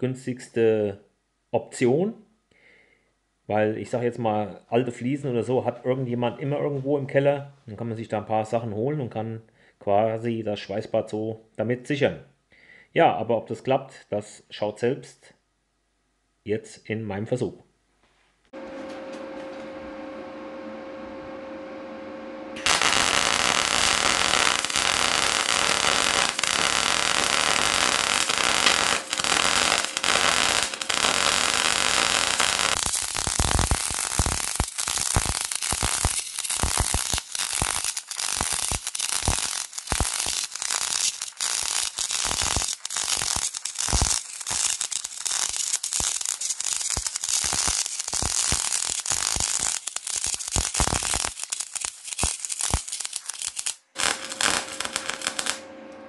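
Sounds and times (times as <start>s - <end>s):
welding arc crackling hiss: 22.6s - 56.0s.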